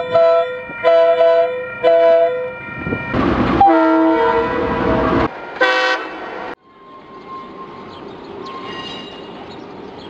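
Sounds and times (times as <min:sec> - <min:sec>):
locomotive horn chord: 0:03.6 - 0:06.2
short train horn blast: 0:03.6 - 0:06.2.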